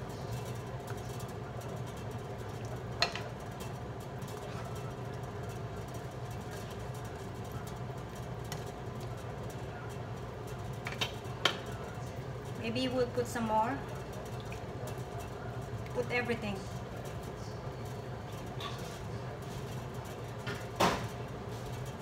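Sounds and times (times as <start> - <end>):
stirring simmering stew: 0.0 - 13.2
low mechanical hum: 0.0 - 22.0.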